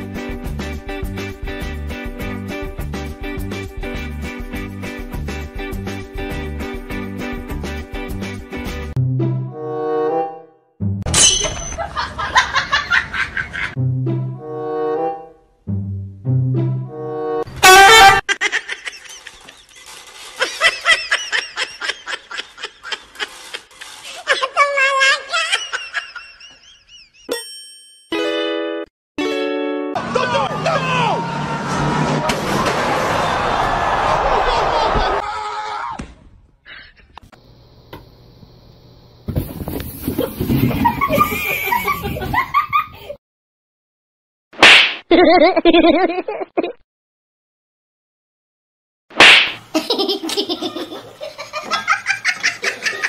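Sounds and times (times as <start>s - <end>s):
person giggling: 18.3s - 19.7s, 20.4s - 27.3s, 40.7s - 43.2s, 45.1s - 46.8s, 49.7s - 53.0s
person laughing and talking: 20.4s - 27.0s, 40.7s - 43.2s, 49.7s - 53.0s
sudden loud noise: 30.1s - 34.1s.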